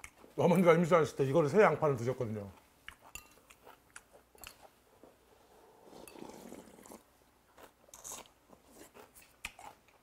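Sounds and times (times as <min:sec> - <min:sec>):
person slurping broth: 0:05.5 - 0:07.1.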